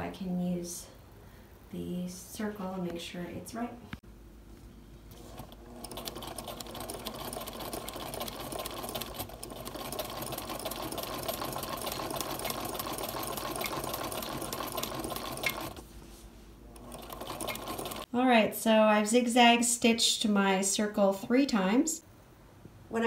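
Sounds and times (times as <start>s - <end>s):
sewing machine running: 5.1s - 15.8s, 16.7s - 18.1s.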